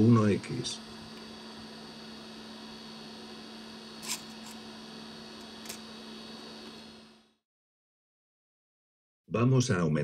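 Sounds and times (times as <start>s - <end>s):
faint high whine: 0.0s - 7.4s
steady electrical hum: 0.0s - 7.4s.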